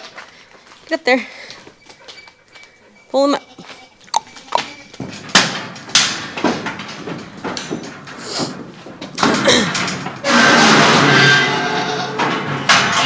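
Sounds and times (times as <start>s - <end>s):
goat hooves clattering on trailer floor: 3.5s - 13.0s.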